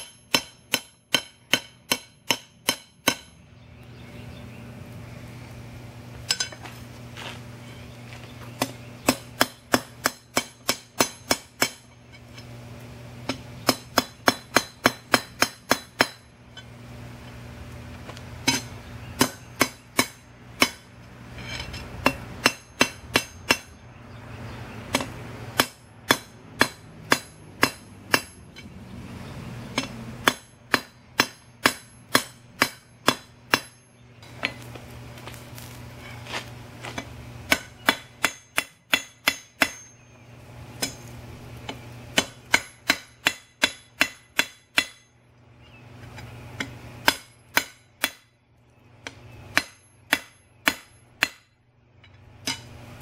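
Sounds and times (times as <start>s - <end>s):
hammer striking steel on anvil: 0.0s - 3.4s, 6.2s - 6.6s, 8.6s - 12.6s, 13.2s - 16.7s, 18.4s - 23.8s, 24.9s - 28.8s, 29.7s - 34.6s, 36.9s - 40.2s, 40.8s - 45.2s, 46.6s - 48.3s, 49.0s - 52.8s
steady low hum: 0.0s - 53.0s.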